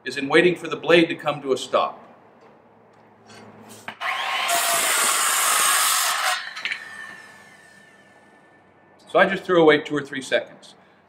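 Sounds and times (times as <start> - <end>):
circular saw cutting wood: 3.9 - 8.2.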